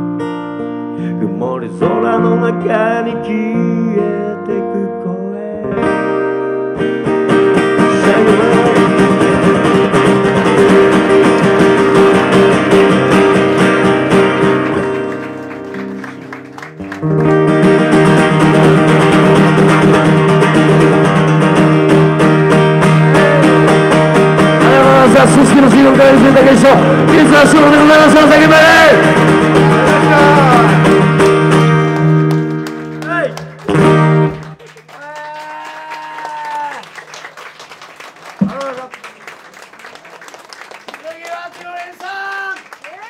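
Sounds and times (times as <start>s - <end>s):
acoustic guitar strumming: 0.0s - 5.0s, 5.6s - 34.6s
bass guitar: 5.1s - 34.7s.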